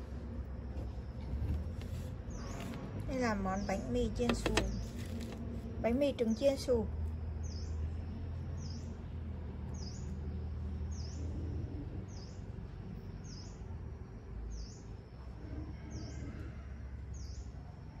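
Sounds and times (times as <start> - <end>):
steady low hum: 0.0 - 18.0
bird chirping: 7.4 - 7.8, 8.6 - 9.0, 9.7 - 11.4, 13.2 - 13.7.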